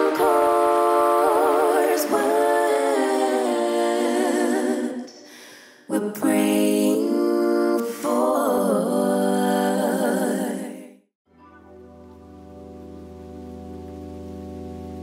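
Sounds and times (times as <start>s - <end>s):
a cappella vocals humming: 0.0s - 11.0s.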